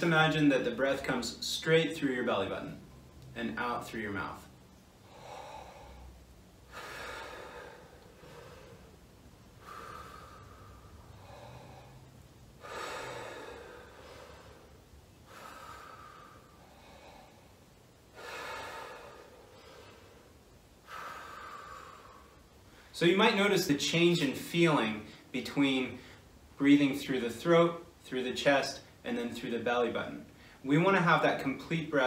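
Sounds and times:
deep breaths through the mouth: 5.0 - 22.9.

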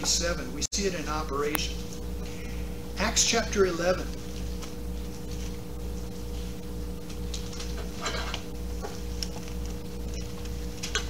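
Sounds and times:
steady low hum: 0.0 - 11.0
book pages being turned: 4.0 - 11.0.

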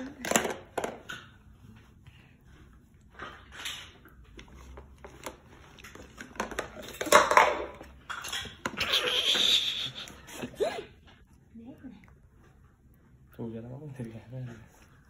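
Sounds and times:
baby squealing and fussing: 8.8 - 10.7.

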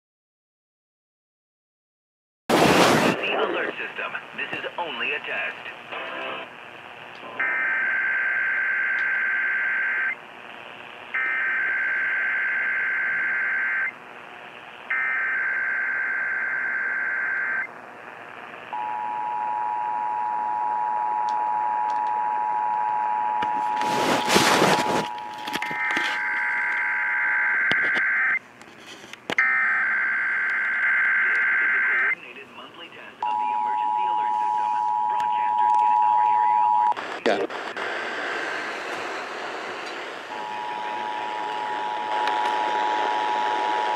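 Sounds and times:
loud burst of noise: 2.5 - 3.5, 23.8 - 25.1, 37.0 - 43.9.

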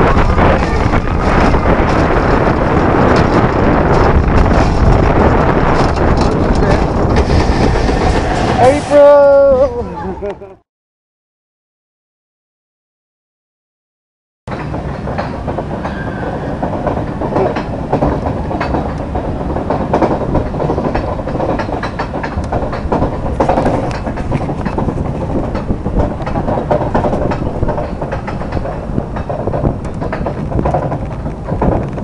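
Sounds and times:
roller coaster lift chain rattle: 0.0 - 10.4, 14.5 - 32.0
irregular clacks: 14.5 - 32.0.

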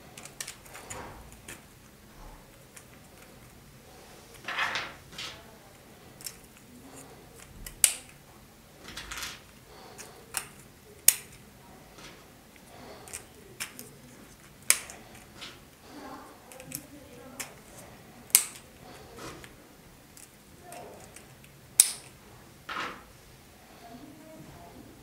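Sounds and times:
plastic parts rustling: 0.0 - 23.1
sharp plastic clicks: 7.4 - 8.2, 9.4 - 15.8, 16.5 - 19.5, 20.1 - 22.2.

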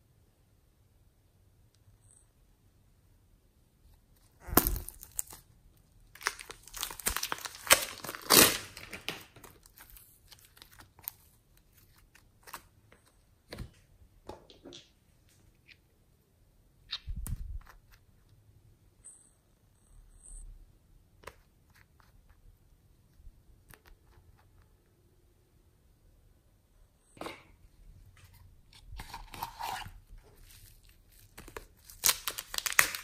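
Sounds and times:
plastic piping bag crinkling: 4.4 - 12.7, 30.0 - 33.0.

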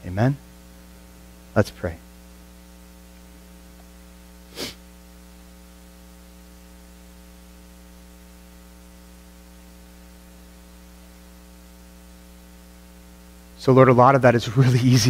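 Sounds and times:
electrical mains hum: 0.0 - 15.0
short breath: 4.5 - 4.8.

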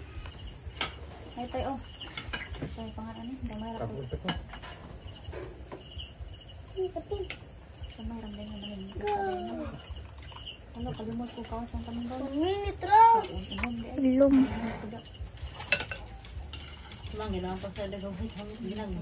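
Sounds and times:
crickets chirping: 0.0 - 19.0
spoons clicking on plates: 15.5 - 17.2.

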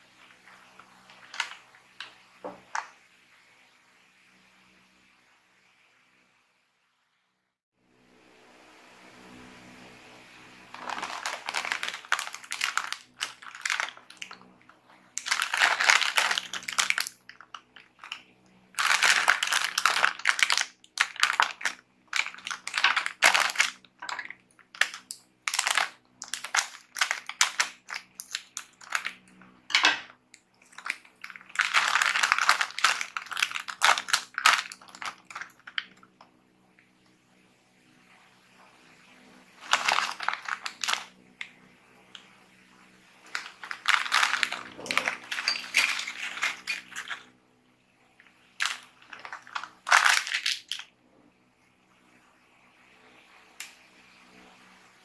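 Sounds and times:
plastic chip bag crinkling: 0.2 - 2.9, 10.7 - 36.2, 39.6 - 41.5, 43.2 - 47.3, 48.6 - 50.9.

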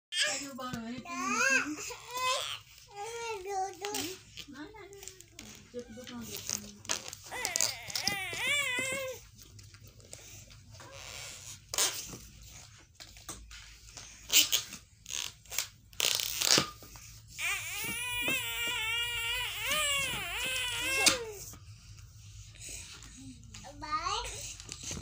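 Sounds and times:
toddler whining: 1.1 - 4.2, 7.2 - 9.3, 17.4 - 21.6.

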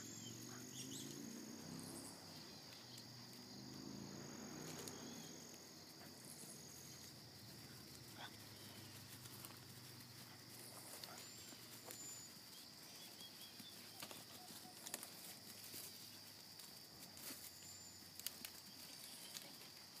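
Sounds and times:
faint clicks: 4.7 - 5.1.

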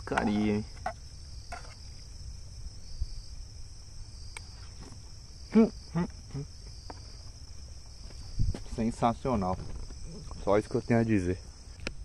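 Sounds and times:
crickets chirping: 0.0 - 12.0
person making voiced sounds: 5.5 - 6.5.

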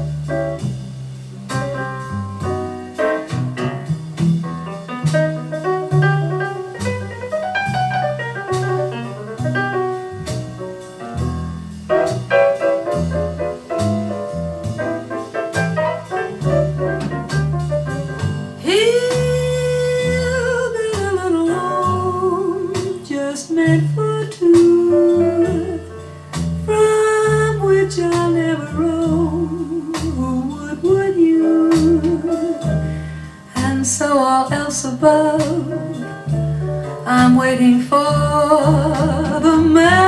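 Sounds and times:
bass line and chords: 0.0 - 40.0
female vocal jazz ballad: 18.2 - 40.0.

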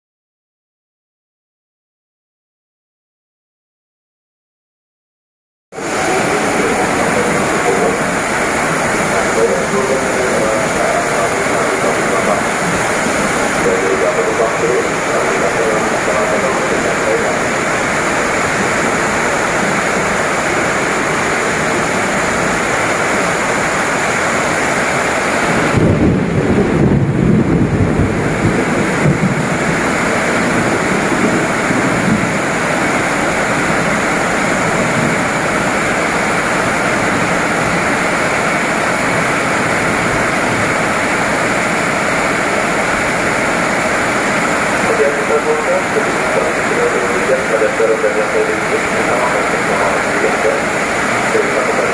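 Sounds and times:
heavy rain pouring: 5.7 - 51.9
electric train rolling past: 5.8 - 25.7.

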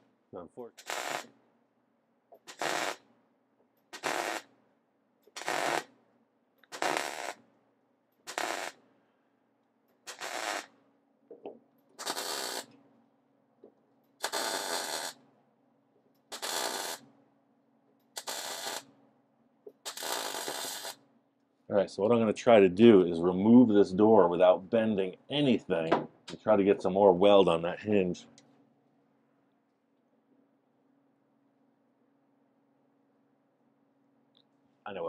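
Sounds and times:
welder crackling bursts: 0.6 - 1.3, 2.4 - 3.1, 3.9 - 4.5, 5.3 - 5.9, 6.6 - 7.4, 8.2 - 8.8, 10.0 - 10.8, 12.0 - 12.8, 14.2 - 15.2, 16.2 - 17.0, 18.1 - 18.9, 19.8 - 21.0.

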